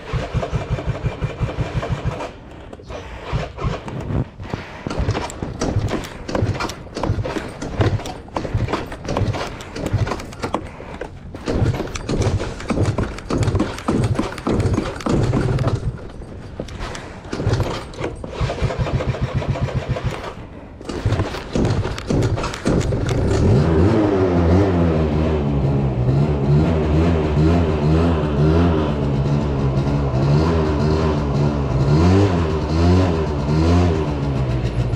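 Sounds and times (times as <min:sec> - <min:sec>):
scooter engine sputtering while cranked: 0:00.0 - 0:02.4, 0:04.9 - 0:24.0
scooter engine running steadily: 0:23.2 - 0:34.9.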